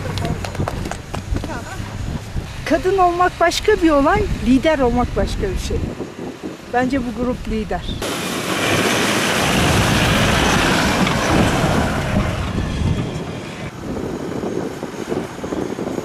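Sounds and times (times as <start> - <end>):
truck driving through snow: 8.0 - 13.8.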